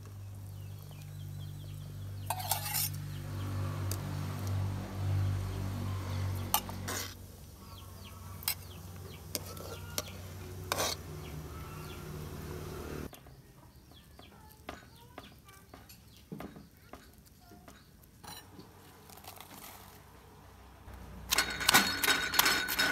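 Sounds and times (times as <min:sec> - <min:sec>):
birds chirping: 0:00.0 - 0:04.1, 0:05.0 - 0:18.8
metal ladle scraping a pot: 0:02.2 - 0:03.1, 0:06.4 - 0:07.2, 0:08.2 - 0:13.1, 0:21.3 - 0:22.9.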